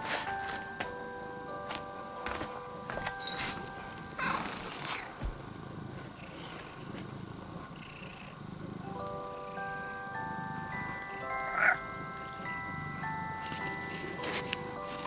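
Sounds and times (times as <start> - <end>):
gentle background music: 0.0 - 15.0
cat purring: 3.4 - 15.0.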